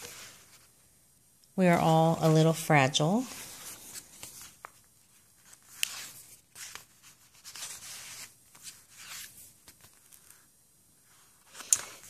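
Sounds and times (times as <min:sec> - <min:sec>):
paper pages rustling: 0:00.0 - 0:00.8, 0:01.6 - 0:12.0.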